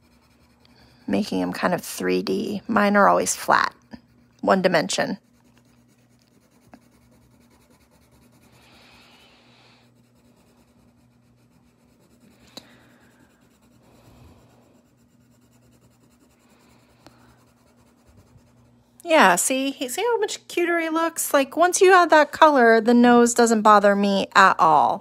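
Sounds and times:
pencil scratching on paper: 0:00.0 - 0:18.8.

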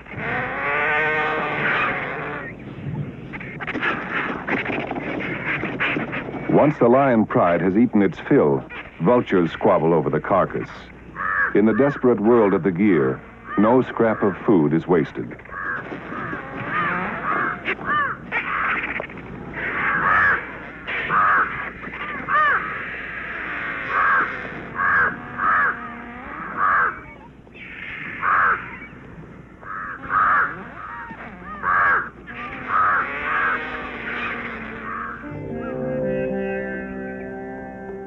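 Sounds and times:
crows cawing: 0:11.1 - 0:14.4, 0:15.4 - 0:35.3.

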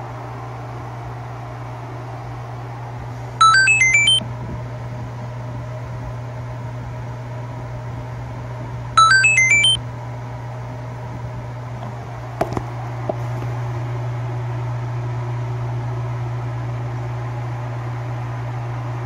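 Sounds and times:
electronic beeps: 0:03.4 - 0:04.2, 0:09.0 - 0:09.8
wire stripping machine humming: 0:08.8 - 0:14.0.

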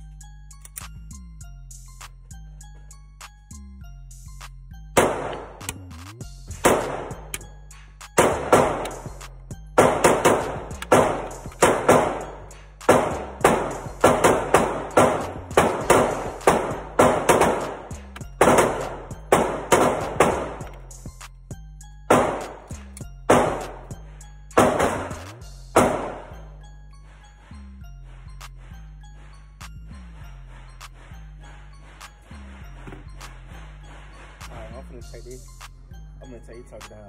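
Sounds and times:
gunshots echoing indoors: 0:05.0 - 0:05.7, 0:06.6 - 0:07.4, 0:08.2 - 0:09.0, 0:09.8 - 0:20.8, 0:22.1 - 0:22.7, 0:23.3 - 0:23.9, 0:24.6 - 0:26.4.

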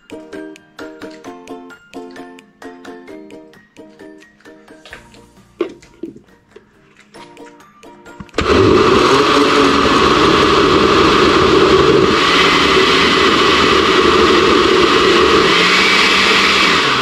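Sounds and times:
blender running at high speed: 0:08.4 - 0:17.0.

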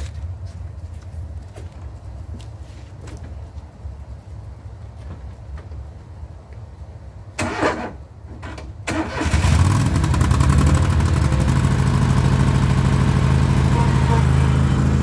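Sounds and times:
mower engine cranking: 0:07.4 - 0:15.0
mower engine running: 0:08.9 - 0:15.0.

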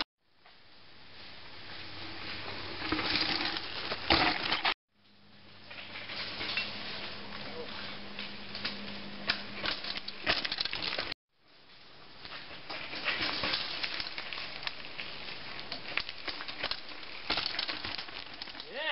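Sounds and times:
bike tyres crunching over rock and leaves: 0:05.5 - 0:18.9.

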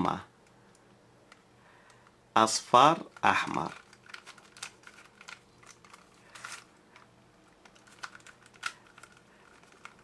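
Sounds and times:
plastic puzzle clicking: 0:03.0 - 0:10.0.

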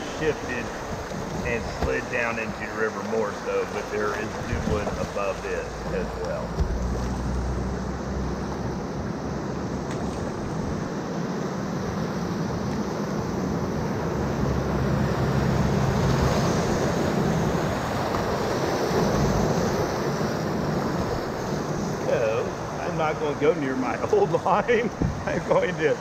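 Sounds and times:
whitewater rapids rushing: 0:00.0 - 0:07.6
wind buffeting microphone: 0:00.0 - 0:07.9, 0:24.0 - 0:26.0.

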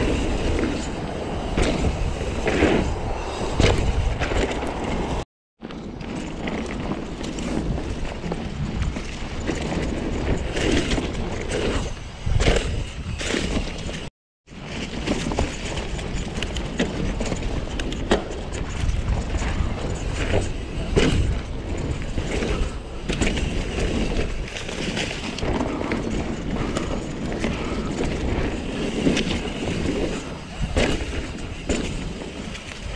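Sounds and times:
bike knocks and clatter: 0:00.0 - 0:32.9
bike tyres on dirt: 0:00.0 - 0:32.9
wind noise: 0:00.0 - 0:32.9.

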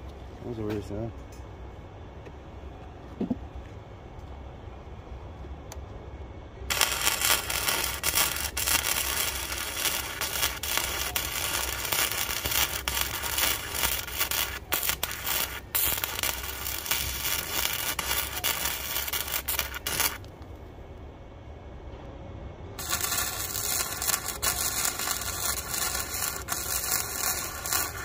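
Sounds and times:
welding arc crackling: 0:06.7 - 0:20.4, 0:22.8 - 0:28.0.

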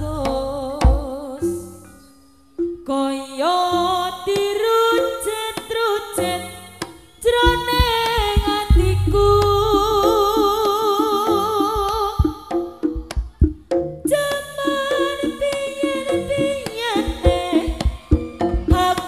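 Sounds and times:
high wavering melody: 0:06.1 - 0:12.2
repeated drum strokes: 0:06.8 - 0:19.0.

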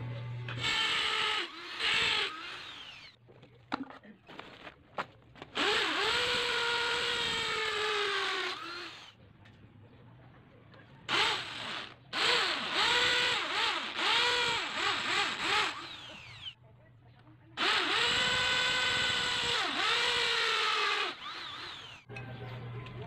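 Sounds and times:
hammer drill boring into tile: 0:00.6 - 0:03.2, 0:05.6 - 0:09.1, 0:11.1 - 0:16.6, 0:17.6 - 0:22.0.

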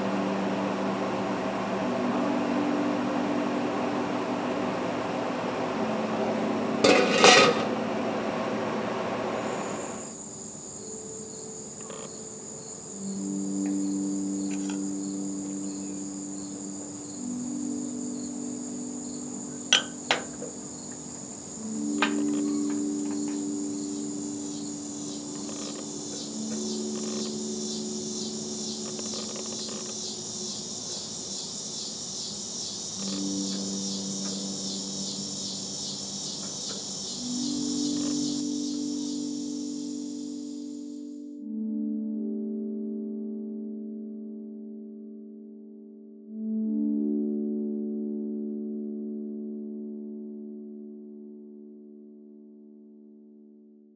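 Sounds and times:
crickets chirping: 0:00.0 - 0:41.2
sharp clink: 0:19.8 - 0:20.3.

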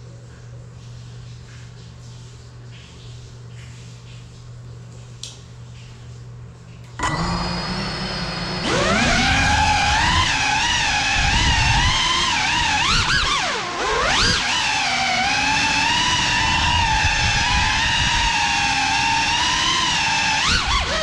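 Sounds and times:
drone motors whining: 0:07.0 - 0:21.0.

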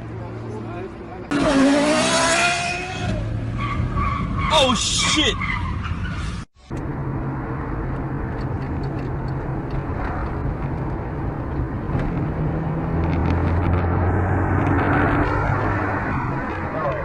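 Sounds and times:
road noise inside car: 0:00.0 - 0:17.0
car engine hum: 0:06.6 - 0:17.0.

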